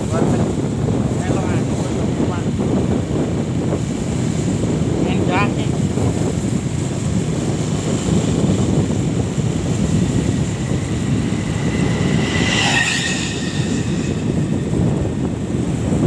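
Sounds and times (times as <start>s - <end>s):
vehicle road rumble: 0.0s - 16.0s
wind rushing over microphone: 0.0s - 16.0s
motorcycle passing: 6.8s - 16.0s.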